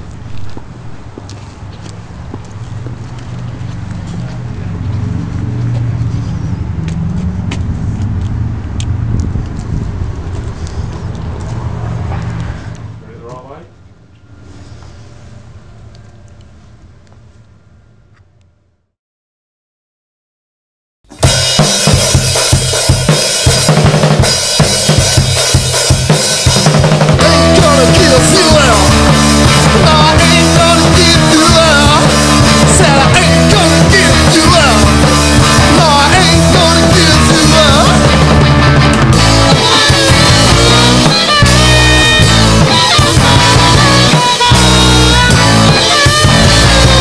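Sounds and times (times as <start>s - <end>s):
bass guitar: 3.1s - 13.4s, 21.1s - 47.0s
rock drum kit: 21.1s - 47.0s
amplified harmonica: 27.2s - 47.0s.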